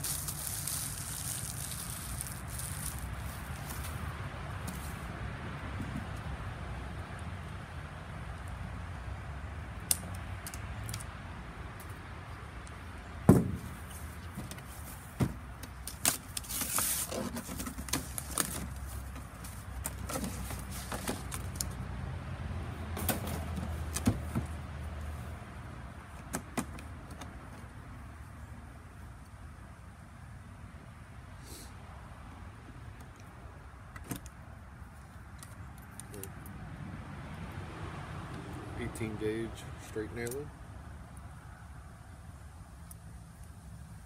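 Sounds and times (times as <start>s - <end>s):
paper or plastic rustling: 0.0s - 4.0s, 15.8s - 21.6s.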